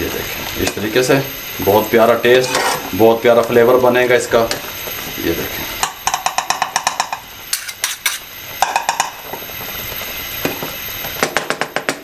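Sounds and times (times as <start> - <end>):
utensils scraping metal wok: 2.3 - 3.0, 7.0 - 8.3.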